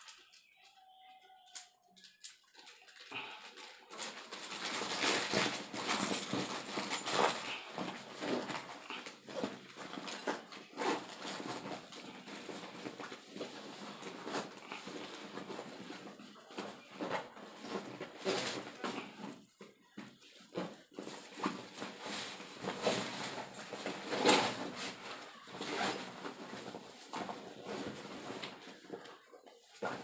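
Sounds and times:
fabric rustling: 20.5s - 30.0s
zipper being worked open: 22.1s - 26.8s.

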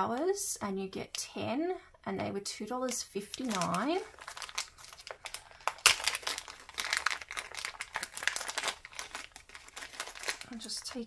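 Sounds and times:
plastic packet crinkling: 2.9s - 11.0s.

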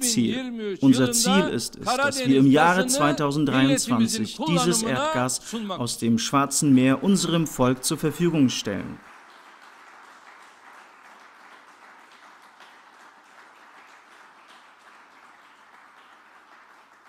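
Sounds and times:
audience applause: 8.9s - 17.0s.

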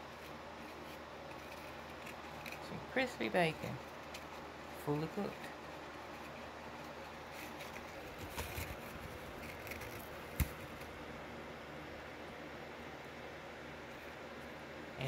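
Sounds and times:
soft rustles of bacon handling: 0.0s - 11.2s.

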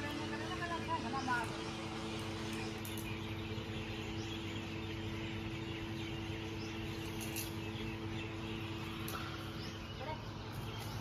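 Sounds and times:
faint bird chirps: 0.0s - 11.0s
steady low hum: 0.0s - 11.0s.

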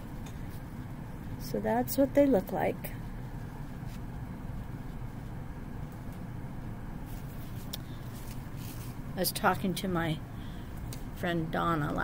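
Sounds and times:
low room hum: 0.0s - 12.0s
cloth rustling: 7.0s - 9.1s.

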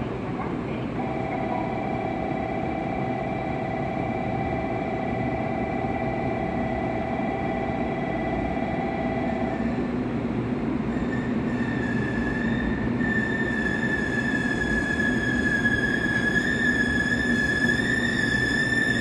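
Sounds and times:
steady tone: 1.0s - 9.9s.

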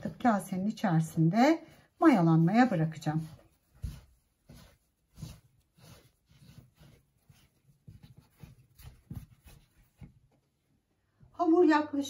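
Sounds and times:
hands kneading dough: 0.0s - 10.9s.

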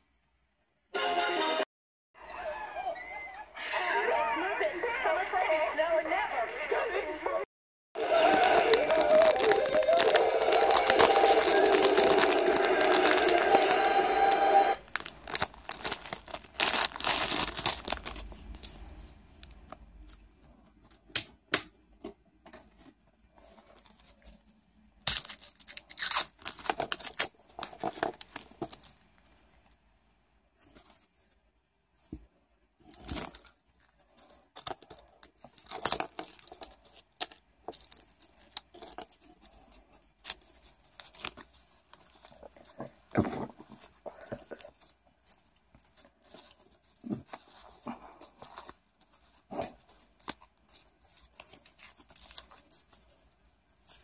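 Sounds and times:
plastic wrappers crinkling and tearing: 8.0s - 20.2s, 23.4s - 29.7s, 32.8s - 54.0s.

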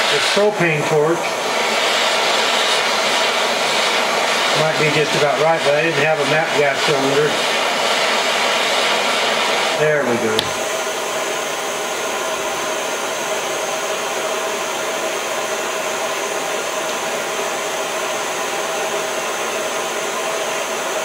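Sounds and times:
propane torch hissing: 0.0s - 21.0s.

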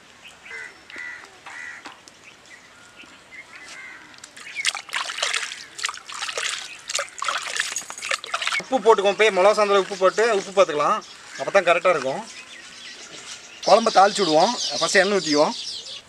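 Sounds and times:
wet paste slapping and sloshing: 4.4s - 8.6s.

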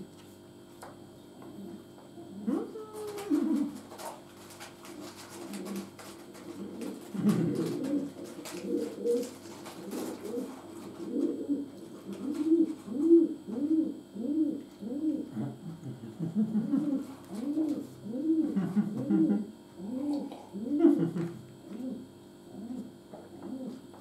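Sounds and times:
man humming while chewing: 13.4s - 24.0s.

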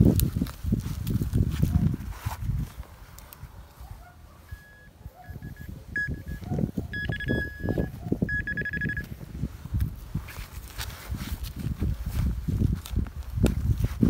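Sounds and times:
metal detector beeping: 4.4s - 9.2s
metal detector warbling tone: 4.4s - 9.2s.

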